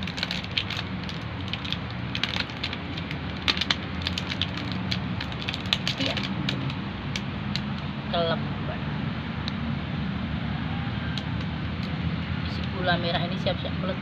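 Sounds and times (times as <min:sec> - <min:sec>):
plastic wrapping crinkling: 0:00.0 - 0:07.7.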